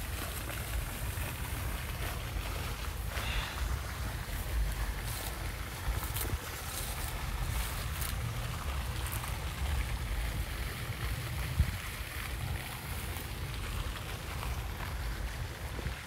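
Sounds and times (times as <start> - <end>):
wind buffeting microphone: 3.6 - 16.0.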